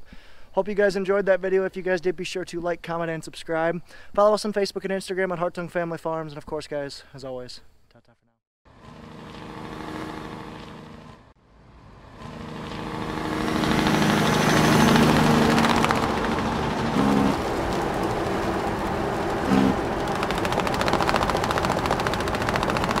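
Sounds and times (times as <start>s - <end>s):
diesel tractor engine running: 8.7s - 23.0s.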